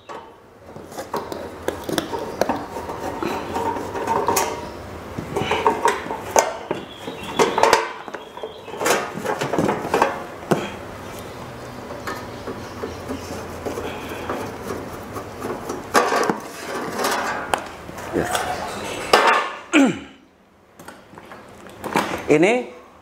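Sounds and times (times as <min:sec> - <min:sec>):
metal cover clinking and rattling: 0:05.4 - 0:10.3, 0:15.8 - 0:17.6.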